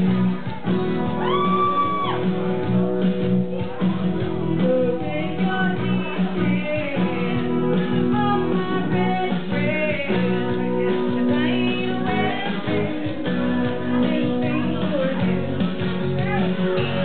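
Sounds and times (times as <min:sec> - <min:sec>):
guitar accompaniment: 0:00.0 - 0:17.0
woman singing into a microphone: 0:04.4 - 0:17.0.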